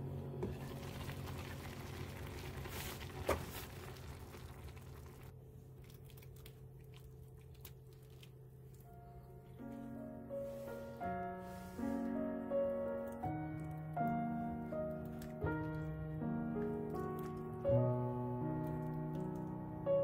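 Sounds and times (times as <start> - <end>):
stew bubbling in a pot: 0.5 - 7.9.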